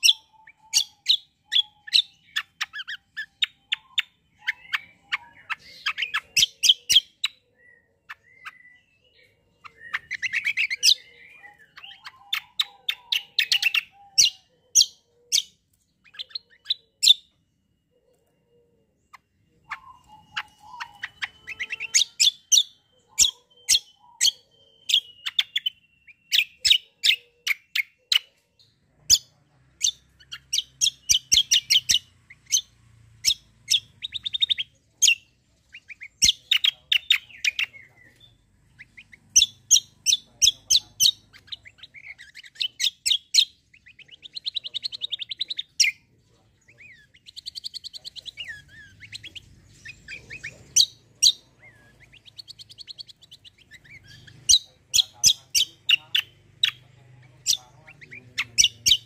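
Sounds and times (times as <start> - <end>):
songbird singing: 0.0 - 59.0.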